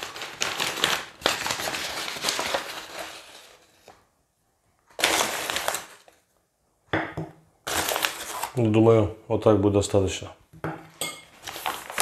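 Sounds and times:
paper bag rustling and crinkling: 0:00.0 - 0:04.0, 0:04.9 - 0:06.3, 0:07.7 - 0:08.8, 0:11.4 - 0:12.0.

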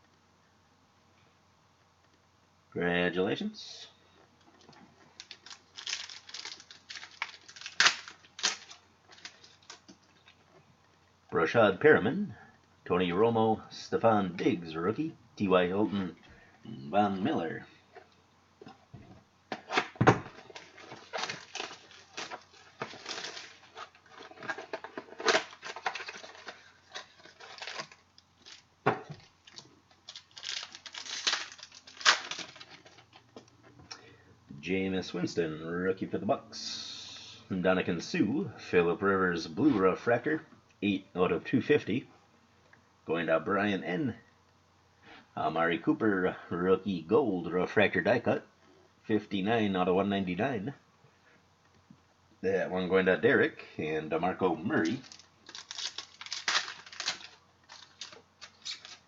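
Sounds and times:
cards rustling: 0:04.6 - 0:10.4, 0:19.6 - 0:33.5, 0:54.7 - 0:59.0
wrapper crinkling and tearing: 0:04.6 - 0:10.4, 0:19.8 - 0:33.2, 0:54.8 - 0:59.0.

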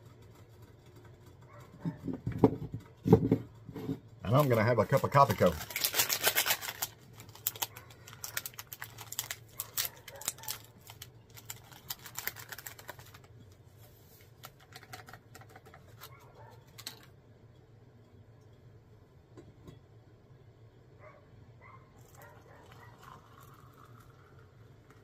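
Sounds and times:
plastic sachet crinkling and tearing: 0:04.3 - 0:13.3.

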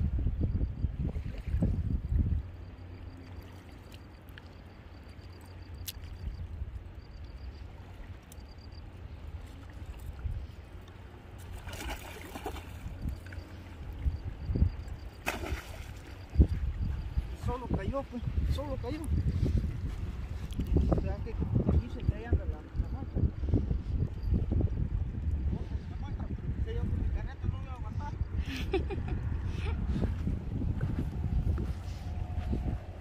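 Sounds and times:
water lapping at shore: 0:02.8 - 0:21.0
splash in water: 0:11.5 - 0:12.9, 0:15.2 - 0:16.2
steady low rumble: 0:12.7 - 0:33.0.

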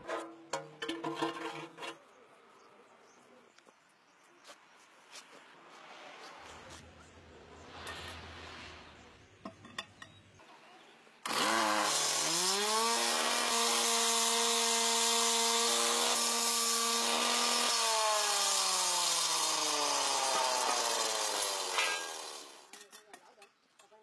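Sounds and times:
power tool motor: 0:11.2 - 0:22.7.

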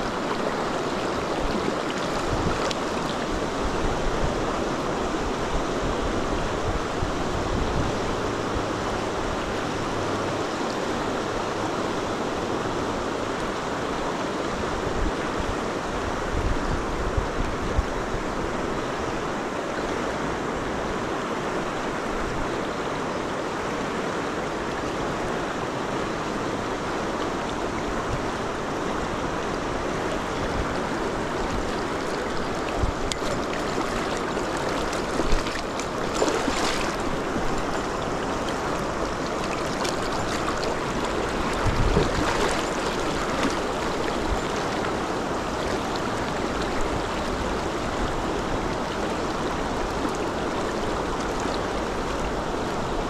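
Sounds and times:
water rushing over river riffle: 0:00.0 - 0:16.2, 0:18.4 - 0:53.0.

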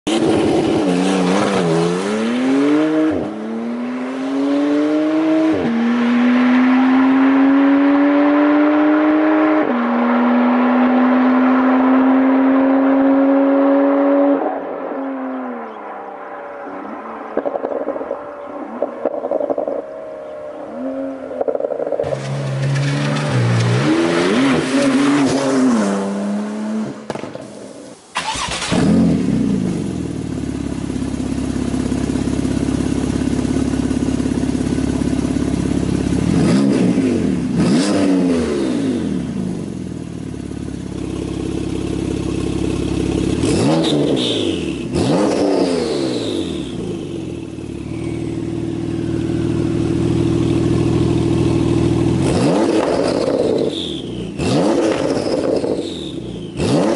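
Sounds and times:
car engine revving: 0:00.1 - 0:56.9
car engine idling: 0:29.5 - 0:36.3, 0:39.7 - 0:43.5, 0:46.6 - 0:52.2.

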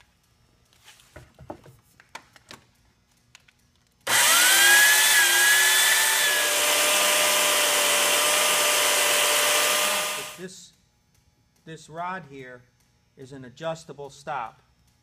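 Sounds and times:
electric chain cutter whining: 0:04.0 - 0:10.5.

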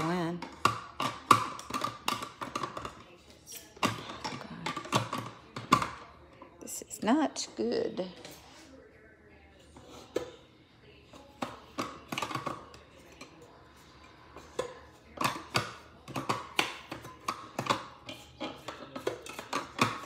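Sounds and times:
plastic parts tapping on stone countertop: 0:00.0 - 0:03.1, 0:14.4 - 0:20.0.

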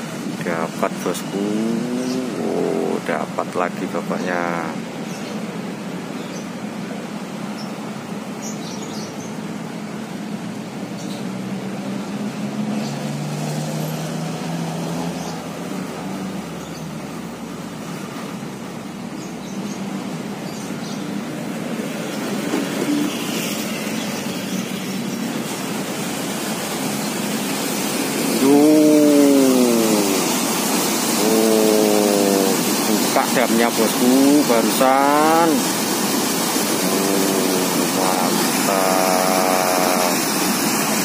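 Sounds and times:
low engine hum: 0:00.0 - 0:03.8, 0:04.4 - 0:33.1
city traffic hiss: 0:00.0 - 0:41.0
flowing river water: 0:00.0 - 0:41.0.

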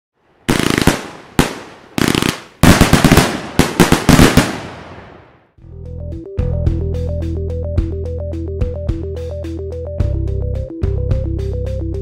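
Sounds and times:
fireworks exploding: 0:00.5 - 0:05.4.

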